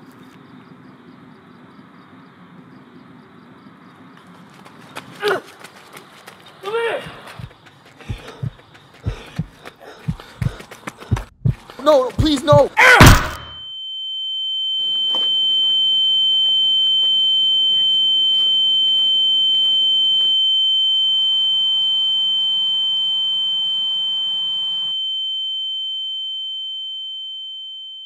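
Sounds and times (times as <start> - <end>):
high-pitched ear ringing tone: 13.5 - 28.0.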